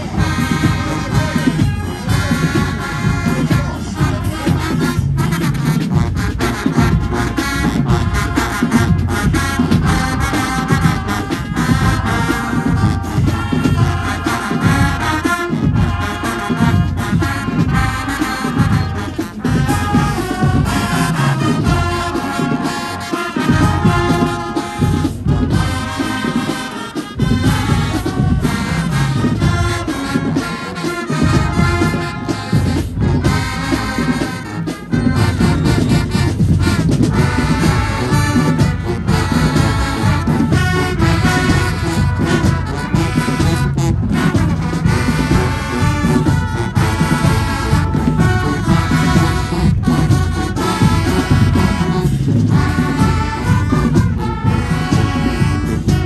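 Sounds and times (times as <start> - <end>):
brass section playing: 0.0 - 56.0
drum line: 0.0 - 56.0.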